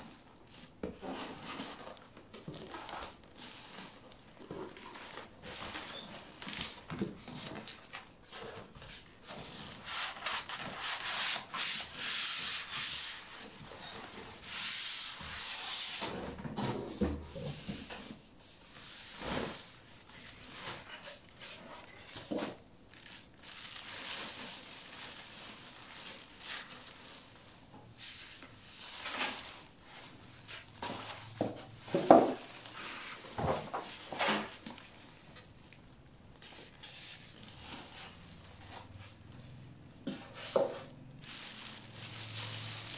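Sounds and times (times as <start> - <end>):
plastic wrap rustling: 0.0 - 16.3, 17.3 - 42.9
foam and cardboard scraping: 4.6 - 22.6.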